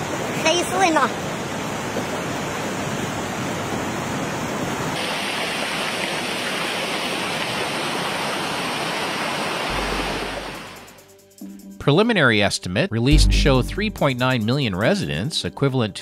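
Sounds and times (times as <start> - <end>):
flood water rushing: 0.0 - 11.0.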